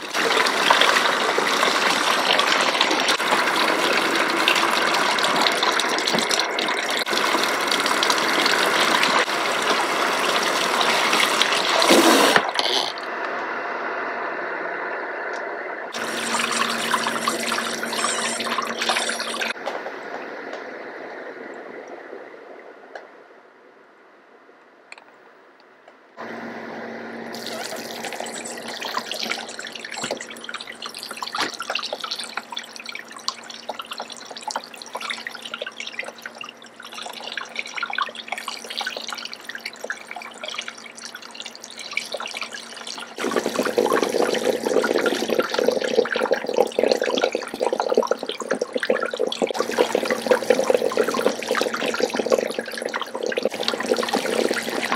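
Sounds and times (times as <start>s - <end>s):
running water splashing and dripping: 0.0s - 12.6s, 16.0s - 19.6s, 27.4s - 54.9s.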